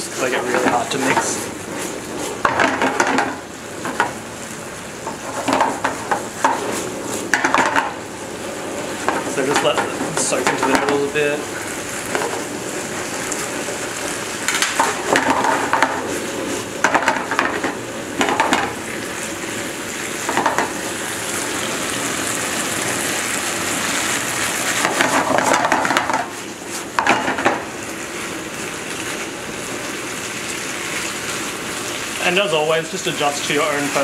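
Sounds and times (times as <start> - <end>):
spatula stirring and scraping: 0.0 - 4.2, 5.0 - 18.6, 24.0 - 31.6
noodles sizzling in a frying pan: 0.0 - 34.0.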